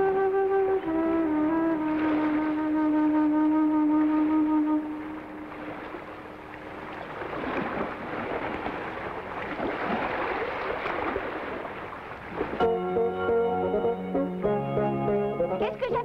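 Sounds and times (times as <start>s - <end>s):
music: 0.0s - 5.5s, 12.6s - 16.0s
held woodwind-like note: 0.0s - 6.0s, 12.6s - 16.0s
wind: 0.0s - 14.8s
waves rushing: 1.2s - 12.8s.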